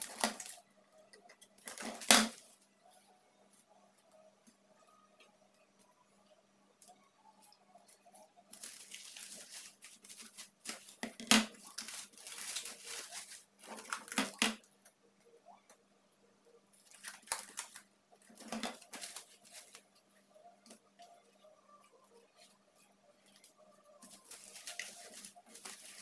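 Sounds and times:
cling film rustling and tearing: 0.0 - 0.6, 1.6 - 2.6, 8.5 - 14.6, 16.8 - 19.9, 23.4 - 26.0.

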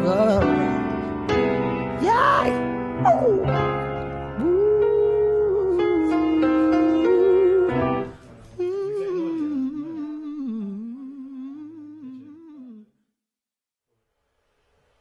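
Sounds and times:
song with vocals: 0.0 - 1.1, 4.2 - 12.9
man humming a tune: 4.4 - 8.0, 8.6 - 12.9.

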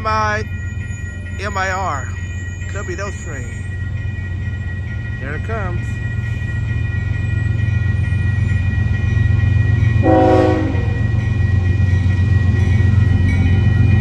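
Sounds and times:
crossing signal bells ringing: 0.0 - 14.0
diesel locomotives rumbling: 0.0 - 14.0
train horn blast: 10.0 - 11.1.

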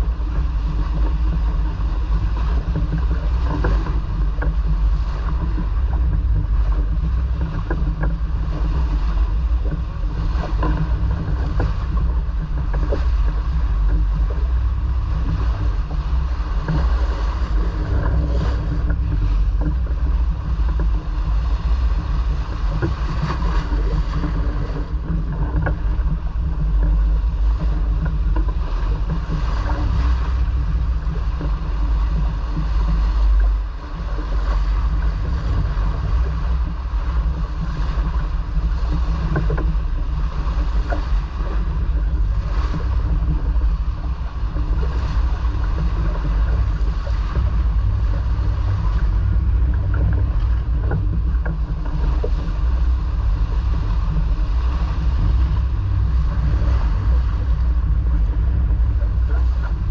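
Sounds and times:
water washing along hull: 0.0 - 59.9
wind buffeting microphone: 0.0 - 59.9.

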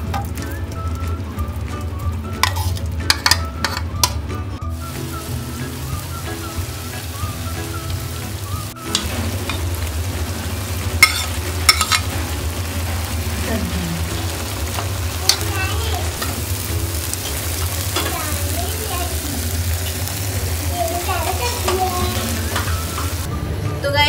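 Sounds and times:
chicken sizzling in hot oil: 0.0 - 23.3
metal spoon scraping and clinking: 2.4 - 3.9, 11.0 - 12.2
onions tipped into pan: 2.4 - 4.2, 10.9 - 12.3.

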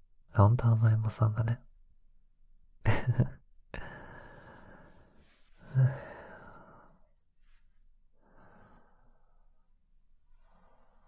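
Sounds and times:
man breathy exhale and sigh: 3.8 - 7.0
man murmuring: 5.6 - 6.3.

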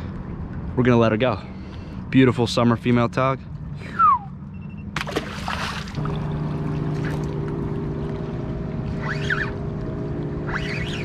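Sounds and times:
boat engine hum: 0.0 - 11.0
fish splashing into water: 5.0 - 8.1.

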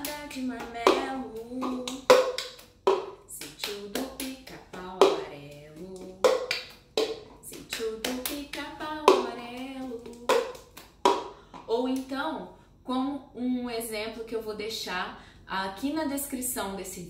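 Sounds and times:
woman singing: 0.0 - 2.4, 3.3 - 6.6, 7.4 - 10.6, 11.7 - 15.0
hand claps: 0.0 - 11.3
plastic cup knocked on countertop: 0.6 - 3.2, 6.2 - 7.3, 10.2 - 11.3.

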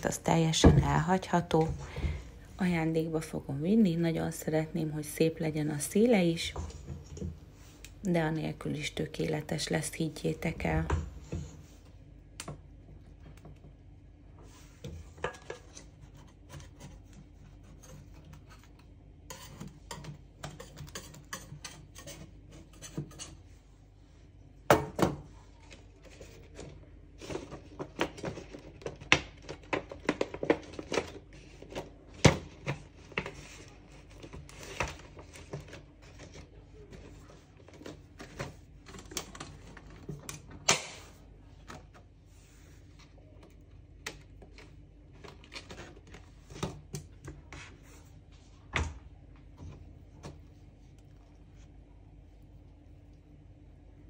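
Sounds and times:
plastic sheet crinkling and scraping: 25.6 - 41.2.

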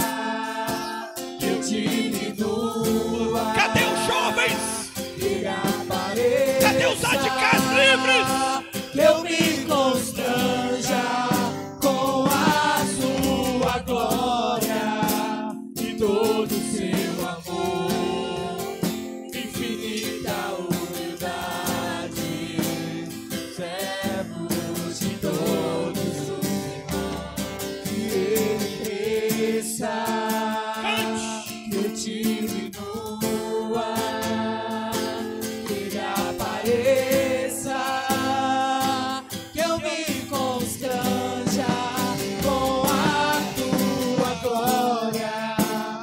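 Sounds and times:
guitar accompaniment: 0.0 - 46.0
person singing: 0.7 - 18.7, 30.7 - 32.2.

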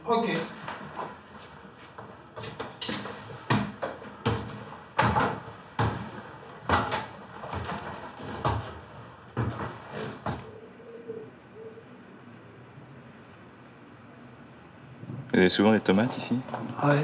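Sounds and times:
heavy footsteps climbing stairs: 0.0 - 10.6.

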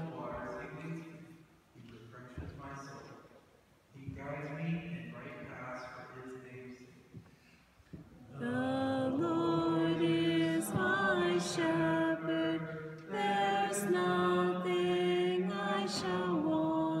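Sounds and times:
choir chant-like singing: 8.2 - 17.0.

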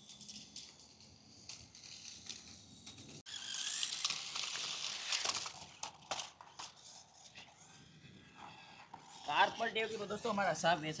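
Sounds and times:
toy car wheels clattering: 0.0 - 10.6.

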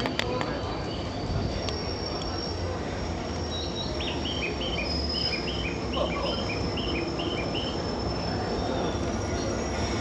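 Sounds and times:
train rumbling: 0.0 - 10.0.

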